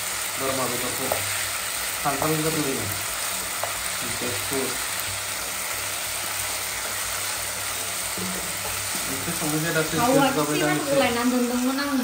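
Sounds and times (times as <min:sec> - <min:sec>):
meat sizzling in a pan: 0:00.0 - 0:12.0
wooden spatula scraping: 0:05.4 - 0:11.2.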